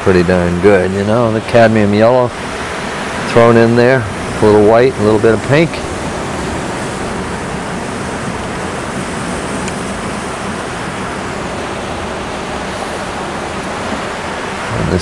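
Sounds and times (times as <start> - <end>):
ocean surf washing over rocks: 0.0 - 15.0.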